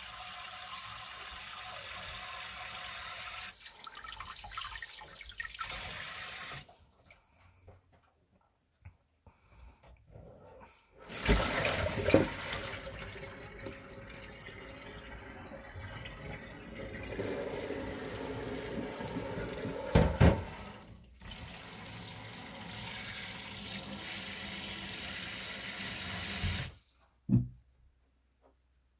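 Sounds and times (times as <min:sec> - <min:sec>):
spray water into plastic tub: 0:17.1 - 0:26.8
thump: 0:19.9 - 0:20.5, 0:27.3 - 0:27.6.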